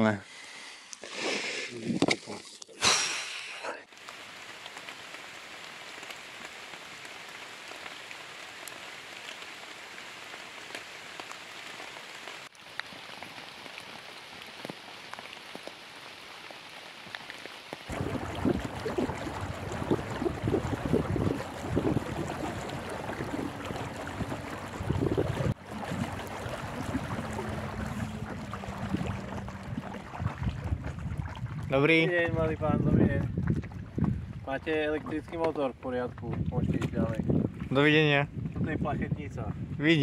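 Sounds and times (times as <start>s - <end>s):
choppy lake water: 0.9s - 40.0s
rain falling through trees: 3.3s - 30.3s
wind buffeting microphone: 17.9s - 40.0s.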